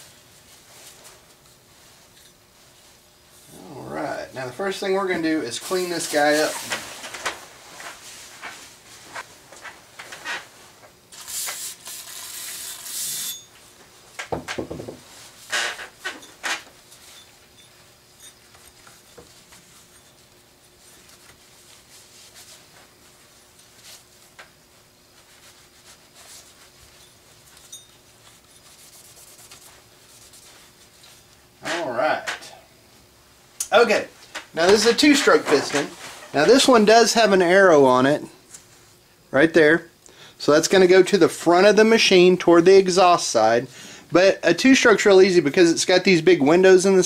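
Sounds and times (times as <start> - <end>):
spray can hissing: 11.1 - 13.3.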